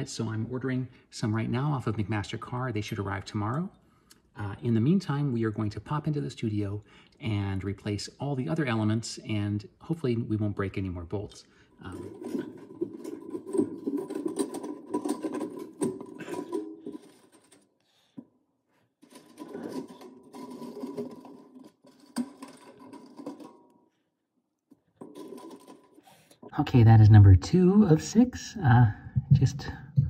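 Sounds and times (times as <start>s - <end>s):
wire coil rattling and scraping on brick: 10.3s - 24.0s, 24.7s - 26.6s.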